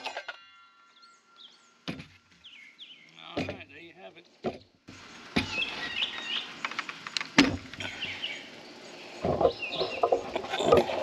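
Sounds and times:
birds chirping: 0.4 - 11.0
plywood handling noise: 9.2 - 11.0.

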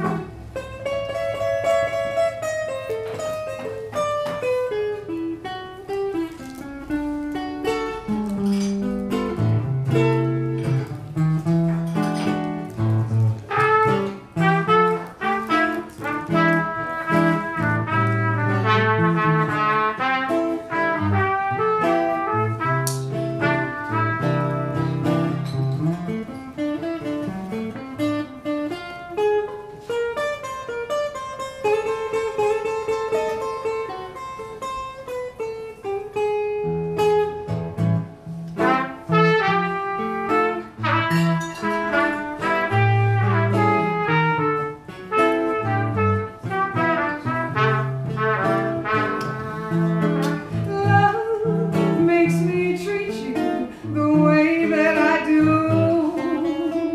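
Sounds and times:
jazz guitar chords and lines: 0.0 - 56.9
trumpet solo: 13.3 - 25.4, 38.6 - 51.8.

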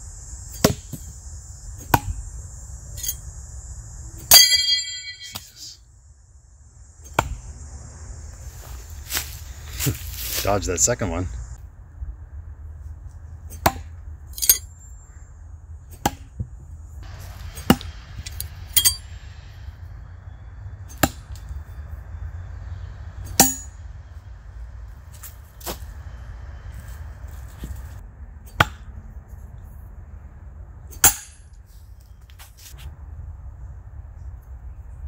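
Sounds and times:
throwing knives thunking into tree: 1.8 - 2.2, 7.0 - 7.4, 13.4 - 14.7, 15.9 - 16.5.

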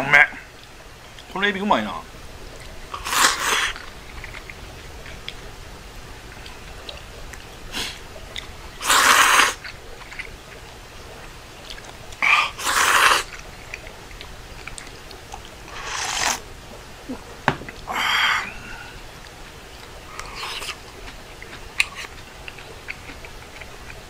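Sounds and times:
noodles being slurped: 2.9 - 4.5, 8.8 - 10.3, 11.7 - 13.5, 15.7 - 16.5, 20.1 - 23.6
broth slurped from bowl: 15.7 - 16.5.

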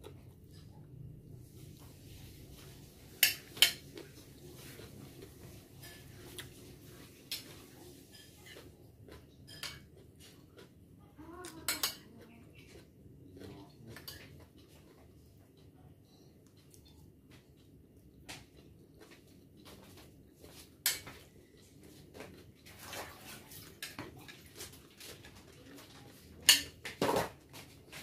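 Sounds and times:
cutlery clinking on a plate: 3.1 - 4.0, 5.8 - 6.3, 7.3 - 10.0, 11.6 - 12.2, 20.8 - 21.3, 26.4 - 27.4.

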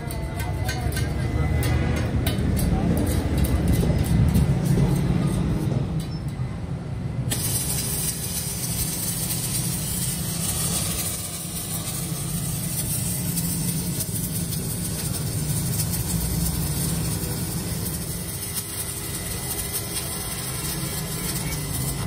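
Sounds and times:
welding arc crackling hiss: 7.2 - 22.0.

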